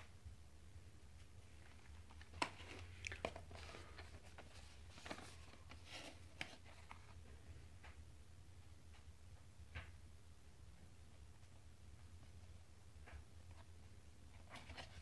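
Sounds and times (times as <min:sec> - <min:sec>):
cardboard boxes being handled: 0:01.8 - 0:07.1.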